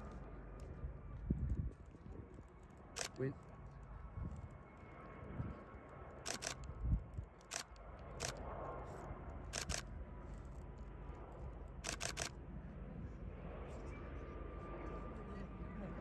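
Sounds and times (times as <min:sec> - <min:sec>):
camera shutters clicking: 0:03.0 - 0:03.2, 0:06.3 - 0:06.7, 0:07.4 - 0:08.4, 0:09.5 - 0:09.8, 0:11.8 - 0:12.3.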